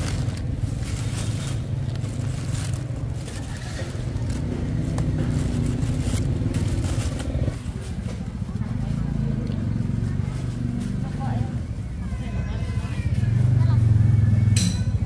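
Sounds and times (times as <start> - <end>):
low rumble: 0.0 - 7.8
plastic bags crinkling: 0.0 - 8.0.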